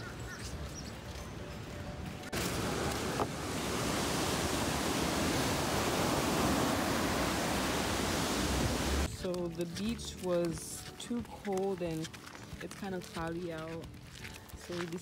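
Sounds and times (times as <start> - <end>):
street ambience: 0.0 - 4.6, 7.5 - 15.0
ocean surf breaking: 2.3 - 9.1.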